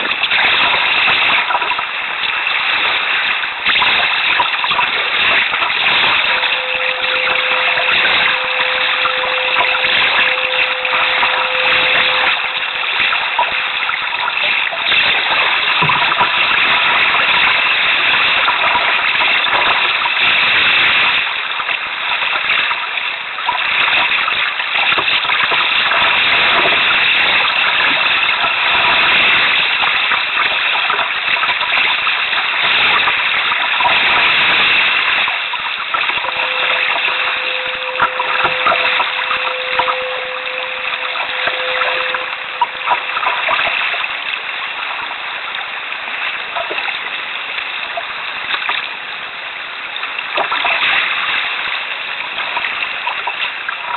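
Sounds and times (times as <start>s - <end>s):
sea water splashing against hull: 0.0s - 53.9s
steady tone: 3.7s - 18.9s, 34.1s - 45.5s.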